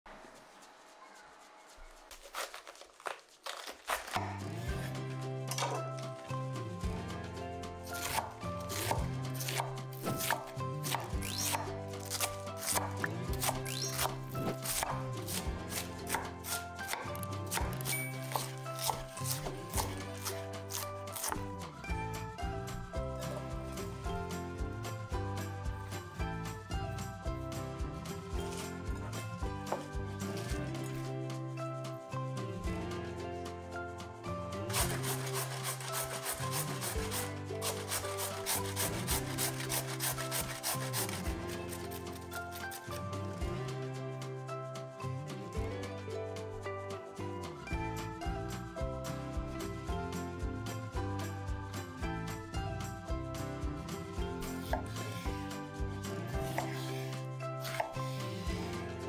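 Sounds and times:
vegetables being shredded: 0:01.8 - 0:04.6, 0:34.7 - 0:43.0
knife slicing cabbage on board: 0:02.1 - 0:04.4, 0:07.9 - 0:21.5, 0:34.7 - 0:42.8, 0:57.6 - 0:58.1
background music sustained notes: 0:04.0 - 0:59.0.

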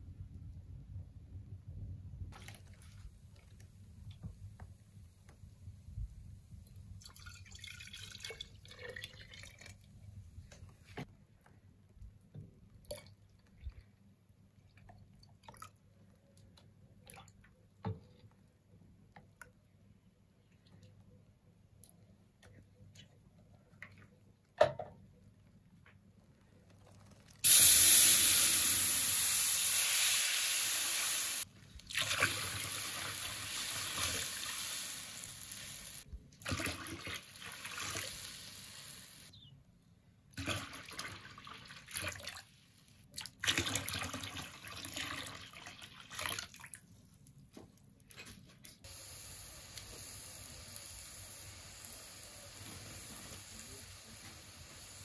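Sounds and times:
juice pouring and splashing: 0:02.3 - 0:04.3, 0:06.8 - 0:10.3, 0:26.4 - 0:39.0, 0:40.4 - 0:47.4
juice hissing in a pot: 0:27.4 - 0:36.1, 0:37.2 - 0:39.3, 0:48.8 - 0:55.0.

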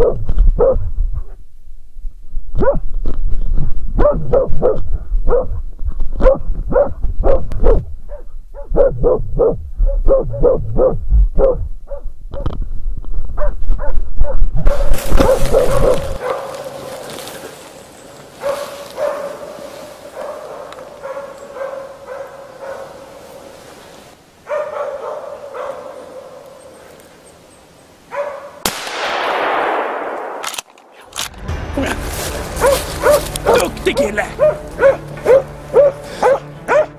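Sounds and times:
dogs barking: 0:00.0 - 0:00.8, 0:02.6 - 0:02.8, 0:04.0 - 0:05.6, 0:06.2 - 0:12.5, 0:13.4 - 0:17.5, 0:18.3 - 0:23.5, 0:24.4 - 0:26.8, 0:28.1 - 0:28.6, 0:32.4 - 0:36.9
rushing noise: 0:31.0 - 0:35.8.

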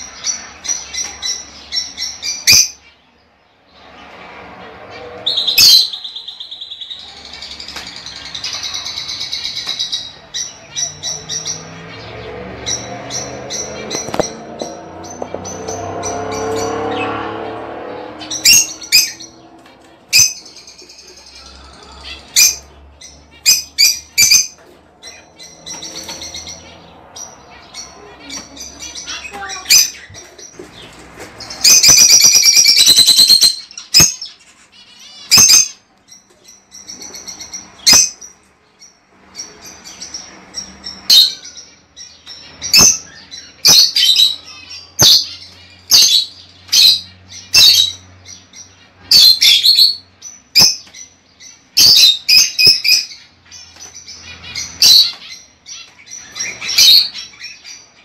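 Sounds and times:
lovebirds chirping and squawking: 0:00.0 - 0:58.0
harsh screeching bird call: 0:04.1 - 0:11.8, 0:12.6 - 0:19.5.

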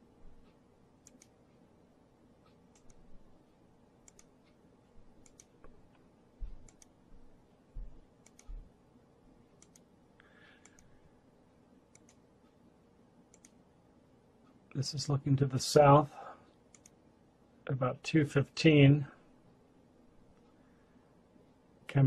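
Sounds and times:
computer mouse clicking: 0:00.3 - 0:01.5, 0:02.4 - 0:03.1, 0:04.0 - 0:07.0, 0:07.8 - 0:08.7, 0:09.6 - 0:09.9, 0:10.5 - 0:11.0, 0:11.9 - 0:12.2, 0:13.3 - 0:13.6, 0:16.7 - 0:17.0
soft low knocks: 0:06.4 - 0:08.7.

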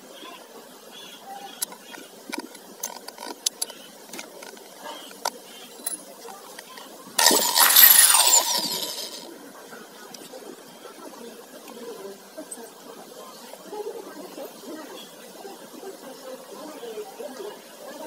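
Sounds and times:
electric drill motor whirring: 0:07.2 - 0:09.2.

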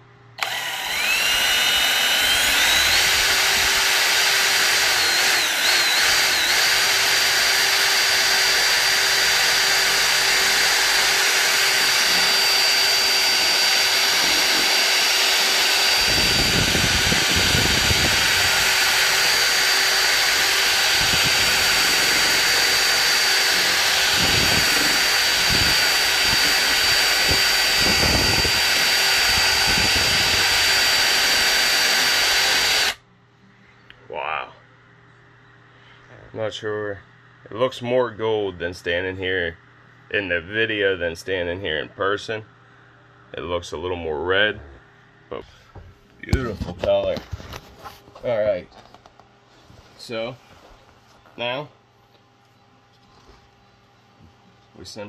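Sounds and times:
electric drill whining: 0:00.4 - 0:33.0.

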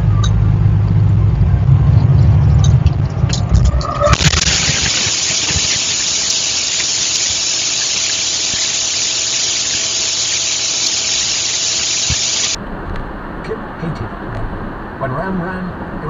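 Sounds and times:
road noise: 0:00.0 - 0:16.0
loud steady hiss: 0:04.1 - 0:12.6.

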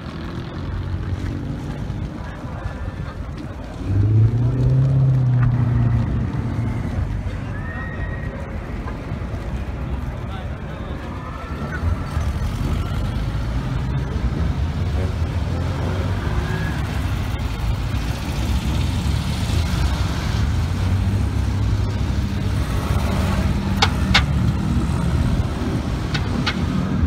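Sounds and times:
car engines idling: 0:08.5 - 0:27.0
sharp exhaust pops: 0:23.7 - 0:24.8, 0:25.9 - 0:27.0.

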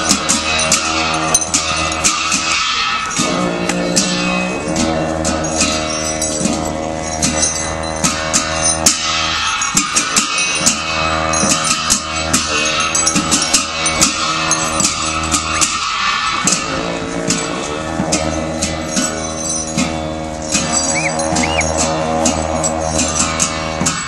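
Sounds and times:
low drone: 0:00.0 - 0:24.0
sharp percussion strikes: 0:00.0 - 0:24.0
stepping melody: 0:20.6 - 0:21.9.

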